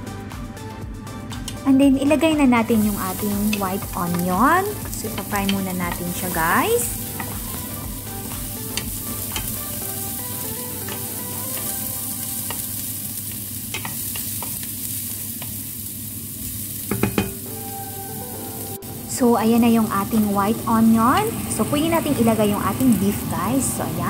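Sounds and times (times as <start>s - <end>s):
onion sizzling in a pan: 2.6s - 24.0s
utensil clicking on pan: 3.1s - 7.8s, 8.6s - 15.6s.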